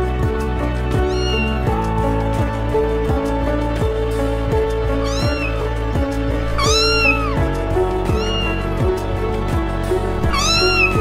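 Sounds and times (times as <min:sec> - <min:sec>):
background music: 0:00.0 - 0:11.0
kittens mewing: 0:01.0 - 0:01.7, 0:04.8 - 0:08.8, 0:10.3 - 0:11.0.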